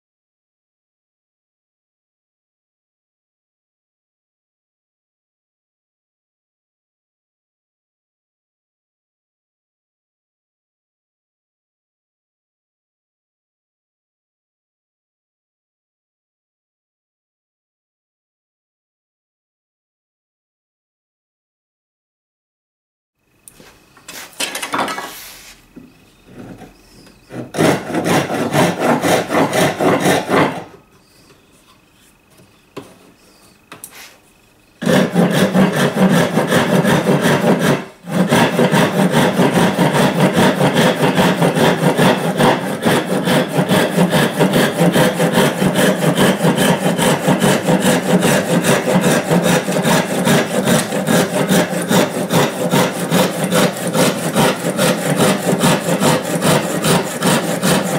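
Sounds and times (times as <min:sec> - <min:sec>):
hand saw cutting wood: 0:26.3 - 0:30.9, 0:34.8 - 0:57.9.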